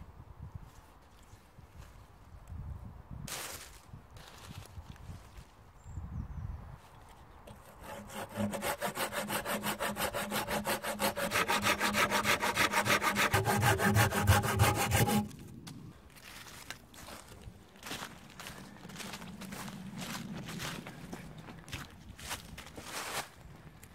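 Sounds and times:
saw cutting wood branch: 7.5 - 15.4.

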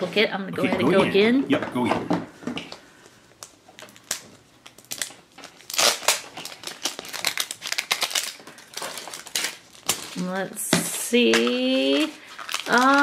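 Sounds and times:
plastic wrapper tearing and crinkling: 3.3 - 13.0.

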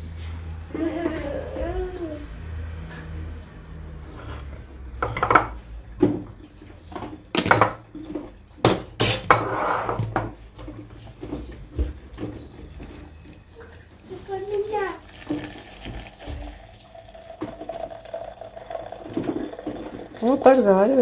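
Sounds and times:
dishes and cutlery clattering: 5.0 - 11.5.

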